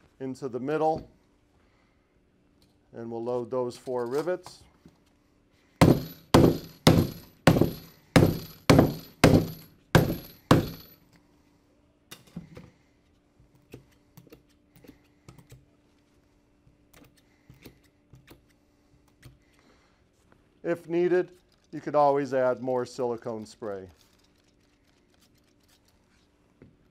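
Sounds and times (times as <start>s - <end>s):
sledge hammer striking rivets: 5.8s - 11.0s.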